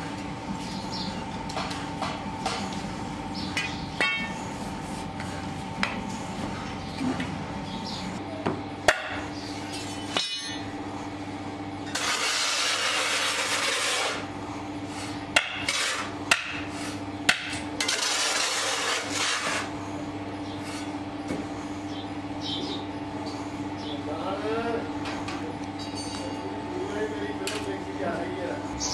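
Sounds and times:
steady low hum: 0:00.0 - 0:28.9
sharp metal knocks: 0:03.6 - 0:04.4.

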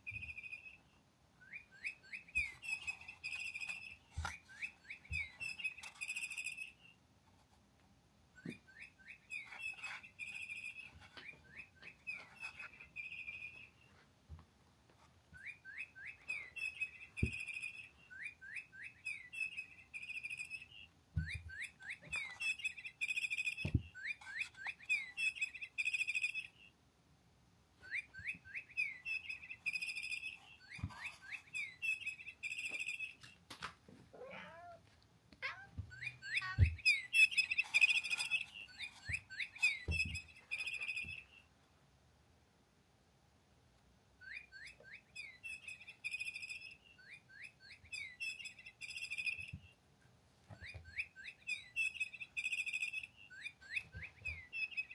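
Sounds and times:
electronic bird toy chirping: 0:00.0 - 0:00.8, 0:01.4 - 0:07.0, 0:08.4 - 0:13.7, 0:15.4 - 0:26.7, 0:27.8 - 0:33.3, 0:35.4 - 0:41.4, 0:44.2 - 0:49.7, 0:50.5 - 0:54.9
cat meow: 0:34.1 - 0:34.8.

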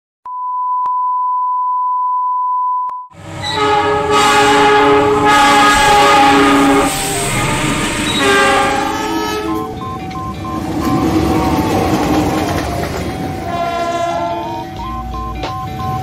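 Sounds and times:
locomotive horn: 0:03.2 - 0:11.8, 0:13.3 - 0:14.9
rumble of passing train: 0:03.2 - 0:16.0
steady test tone: 0:06.0 - 0:11.9.

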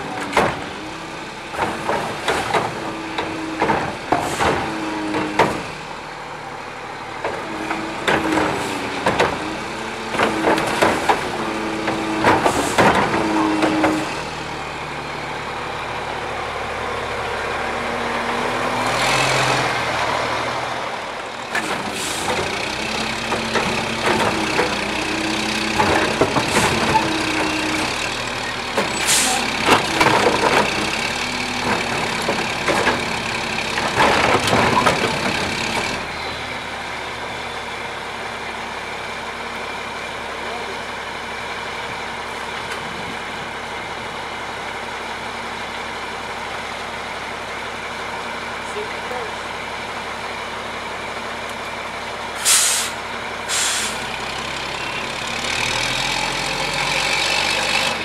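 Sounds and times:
garbage truck diesel engine: 0:00.0 - 0:58.0.

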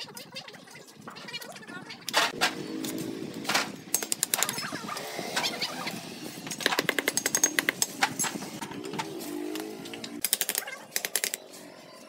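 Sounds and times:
trowels tapping and scraping bricks: 0:06.5 - 0:09.0.

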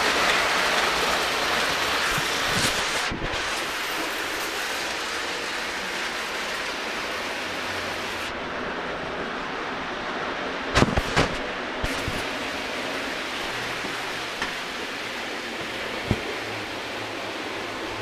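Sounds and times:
toy train wheels rumbling on track: 0:00.0 - 0:08.3.

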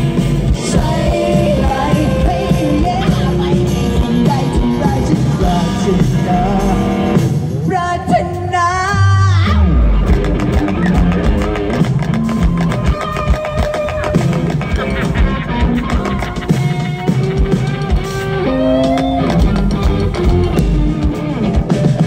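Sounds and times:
bass guitar: 0:00.0 - 0:22.0
drums: 0:00.0 - 0:22.0
electric guitar: 0:00.0 - 0:22.0
person singing: 0:00.5 - 0:10.1
deep bass swell: 0:09.1 - 0:12.6.

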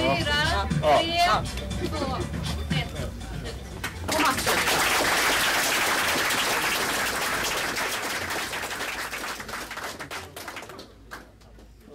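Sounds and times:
audience applauding: 0:03.8 - 0:11.5.

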